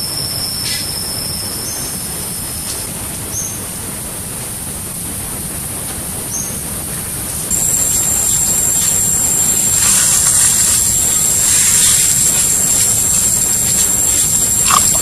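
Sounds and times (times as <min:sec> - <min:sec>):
outdoor background hiss: 0:07.3 - 0:15.0
high-pitched insect drone: 0:07.5 - 0:15.0.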